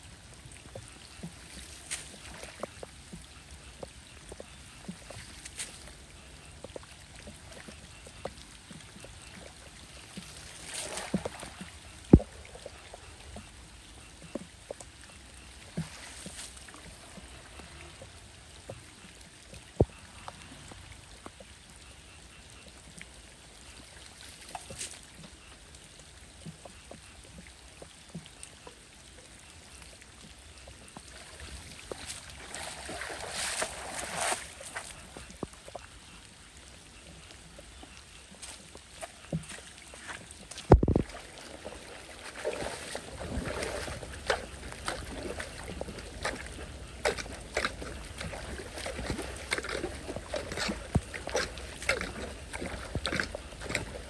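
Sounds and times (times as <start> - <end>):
water trickling and splashing: 0.0 - 54.0
foot kicking through water: 42.2 - 54.0.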